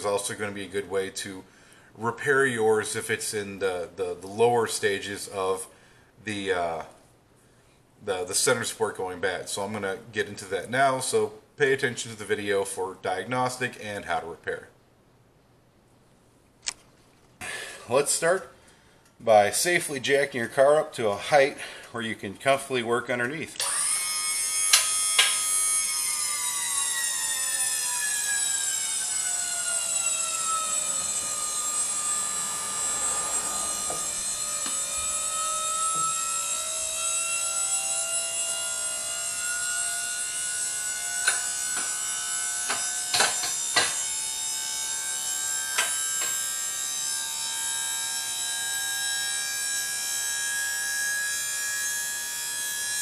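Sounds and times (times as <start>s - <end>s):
hydraulic pump whine: 23.6s - 53.0s.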